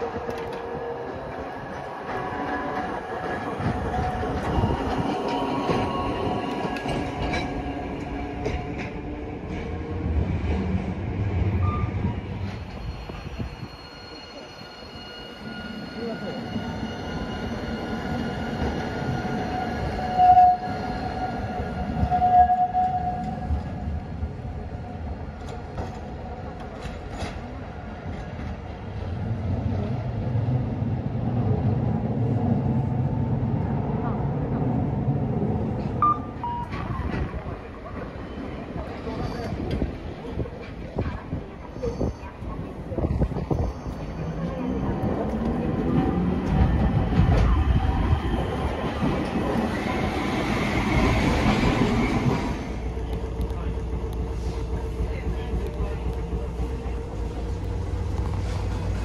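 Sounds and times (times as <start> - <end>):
rail clicks: 0.0 - 13.7, 25.2 - 30.0, 35.6 - 59.0
tram wheels rumbling on track: 0.0 - 59.0.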